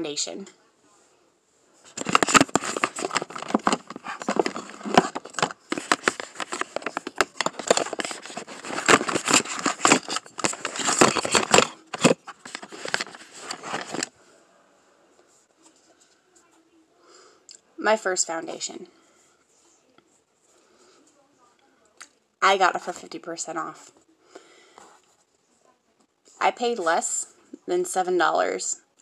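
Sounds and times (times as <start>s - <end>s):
plastic containers clattering: 1.9s - 14.1s.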